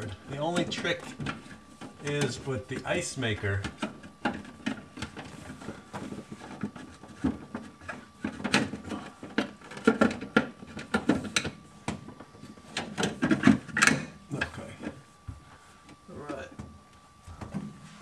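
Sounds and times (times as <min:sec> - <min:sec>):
knocks and rattles of plastic panel: 0:03.6 - 0:15.0.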